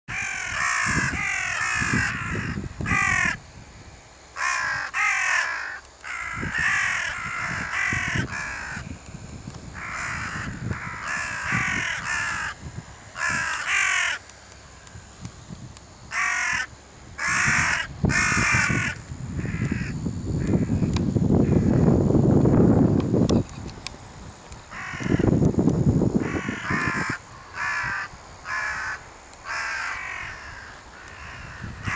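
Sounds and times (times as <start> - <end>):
crows cawing: 0.1 - 3.4, 4.4 - 9.0, 9.8 - 14.3, 16.1 - 20.8, 21.4 - 21.9, 24.7 - 25.4, 26.2 - 31.9.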